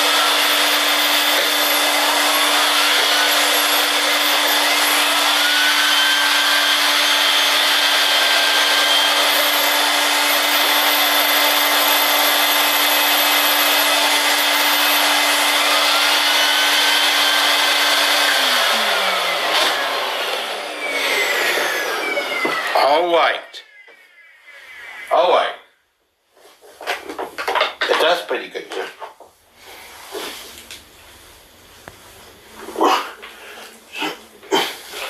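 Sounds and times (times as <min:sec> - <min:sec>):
vacuum cleaner motor humming: 0:00.0 - 0:23.1.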